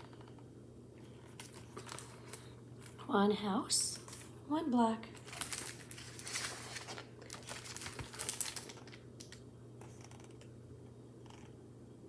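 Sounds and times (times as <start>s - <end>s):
paper rustling page turned: 1.2s - 3.0s, 5.2s - 9.4s.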